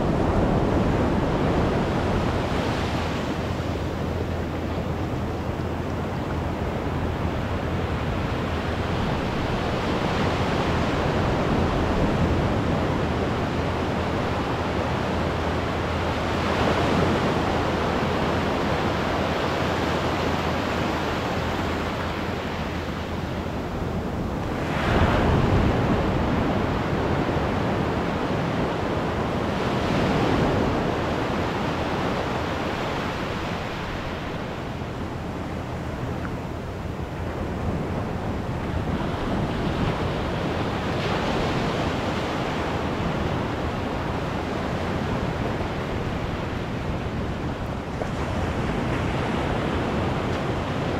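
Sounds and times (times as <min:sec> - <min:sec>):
waves breaking on sand: 0:37.1 - 0:50.9.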